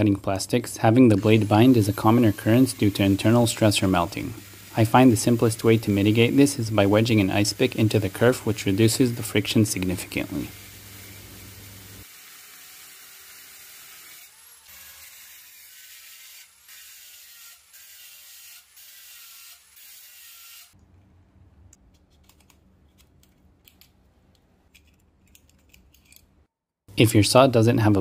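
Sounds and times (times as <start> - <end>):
circular saw cutting: 0.0 - 20.8.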